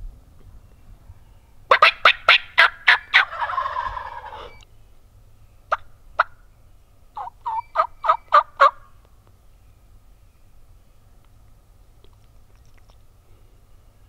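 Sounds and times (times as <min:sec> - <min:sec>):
turkey gobbling: 0:01.7 - 0:04.6, 0:05.7 - 0:06.4, 0:07.1 - 0:08.9.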